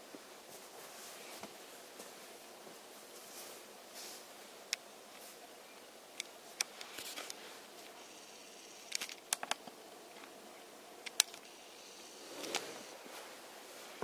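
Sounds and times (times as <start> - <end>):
small sharp clicks: 8.8 - 10.4, 11.0 - 11.6
blanket rustling: 12.2 - 14.0.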